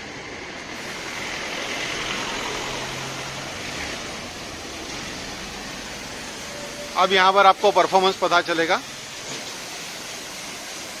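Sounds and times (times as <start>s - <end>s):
pressure washer jet hissing: 0.0s - 11.0s.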